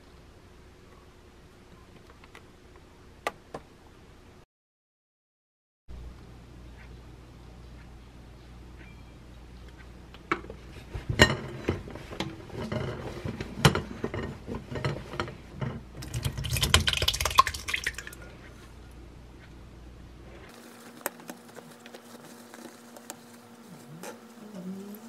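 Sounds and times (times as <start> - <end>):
yogurt pouring splashily: 16.0 - 18.2.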